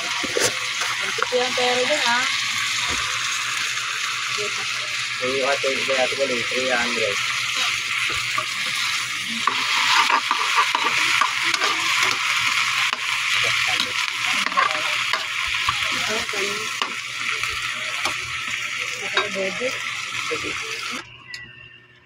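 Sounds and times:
vegetables sizzling in hot oil: 0.0s - 21.0s
metal spatula scraping a pan: 8.6s - 12.2s.

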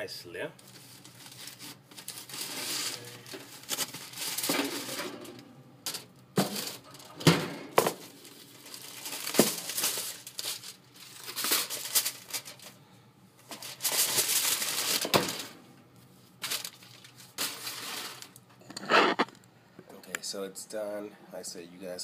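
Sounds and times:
foil crinkling: 0.6s - 5.0s, 5.9s - 7.2s, 7.8s - 12.8s, 13.4s - 15.6s, 16.3s - 18.4s.

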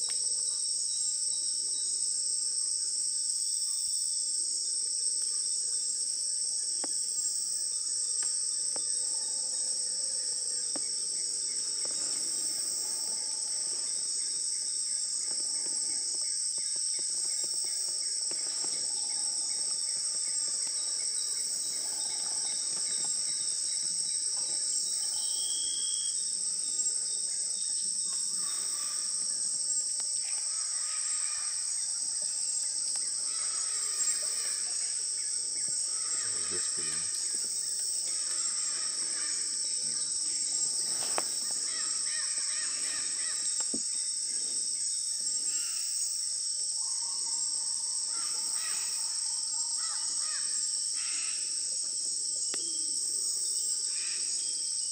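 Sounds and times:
insects shrilling: 32.5s - 44.6s.

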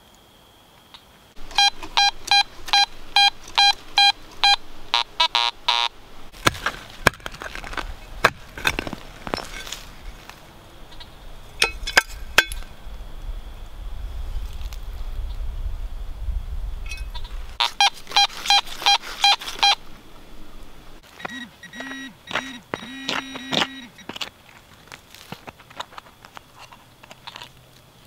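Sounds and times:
metal detector pinpointer beeping: 1.4s - 5.9s, 16.9s - 19.8s, 21.1s - 24.1s
trowel scraping into dirt: 6.3s - 10.4s.

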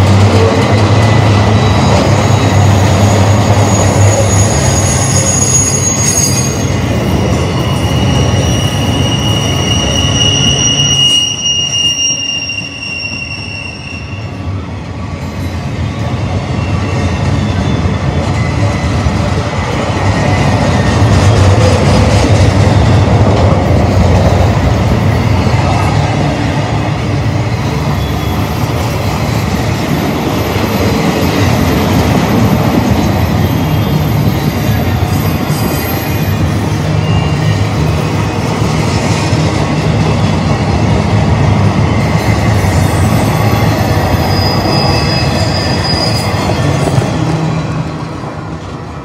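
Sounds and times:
freight train wheels rumbling on rail: 0.0s - 49.0s
high wheel squeals: 1.3s - 14.4s, 27.6s - 38.4s, 41.8s - 47.9s.

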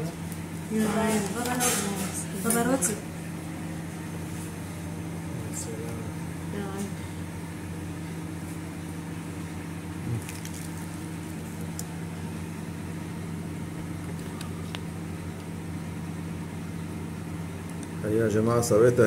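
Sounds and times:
steady machine hum: 0.0s - 19.0s.

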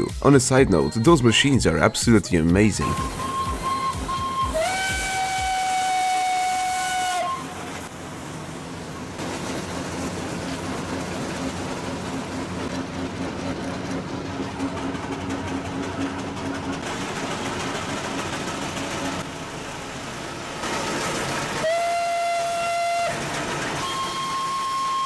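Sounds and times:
steam engine whistle: 2.8s - 7.9s, 21.6s - 25.0s
engine running rumble: 7.3s - 25.0s.

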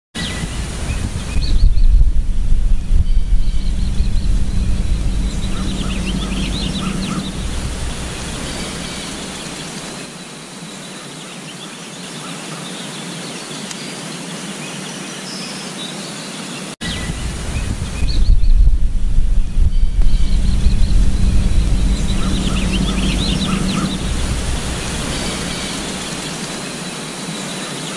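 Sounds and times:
wind-like rushing noise: 0.2s - 10.2s, 16.8s - 27.7s.

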